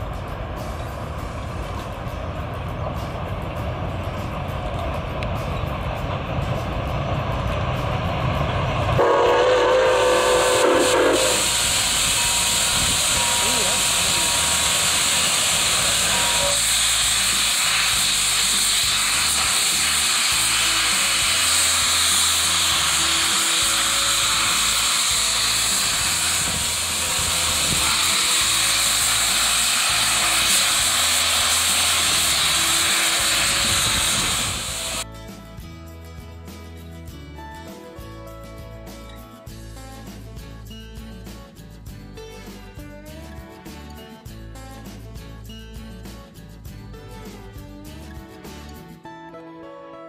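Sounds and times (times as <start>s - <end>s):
music: 0.0s - 50.0s
steam whistle chord: 8.9s - 35.0s.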